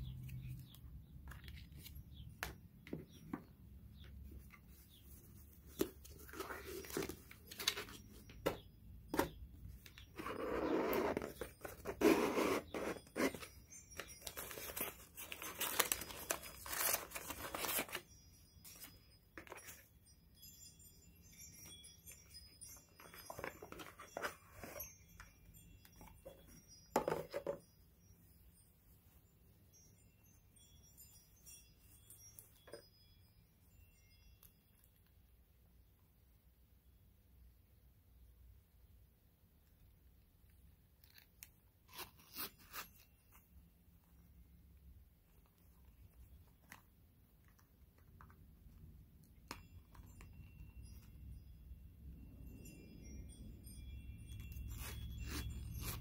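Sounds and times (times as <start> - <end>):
paper and cardboard rustling: 10.2 - 18.1.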